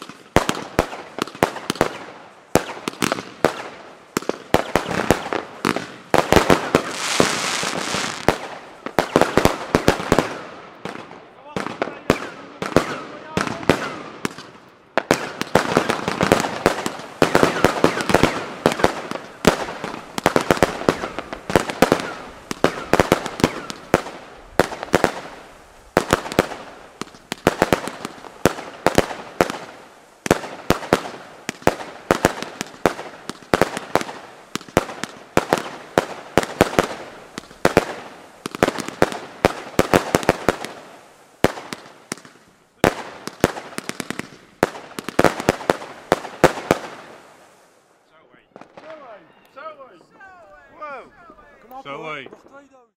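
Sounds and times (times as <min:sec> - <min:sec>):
fireworks crackling: 0:00.0 - 0:52.9.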